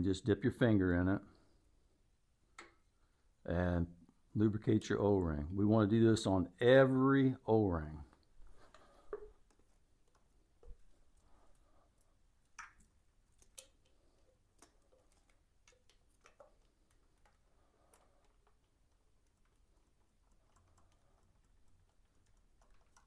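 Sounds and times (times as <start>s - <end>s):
faint clicks and taps: 2.5s - 2.9s, 8.0s - 23.0s.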